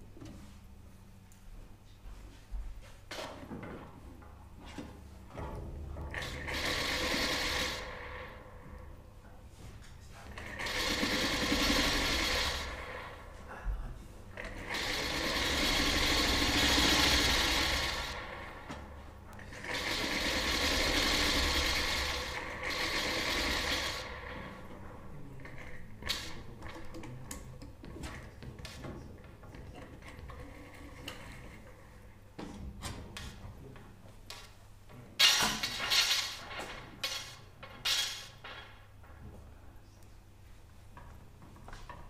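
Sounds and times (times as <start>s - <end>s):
sewing machine running: 5.4s - 9.1s, 10.2s - 13.5s, 14.3s - 26.8s.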